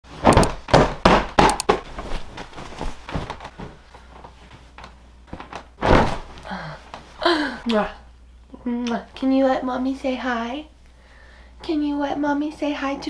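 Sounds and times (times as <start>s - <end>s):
sharp thumps and knocks: 0.2s - 2.1s.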